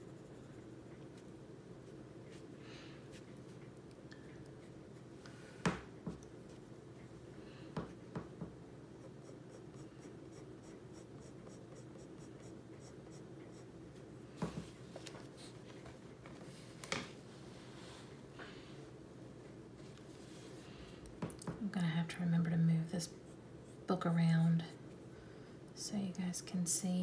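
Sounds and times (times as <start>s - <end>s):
steady low hum: 0.0s - 27.0s
pencil scratching on paper: 9.0s - 13.7s.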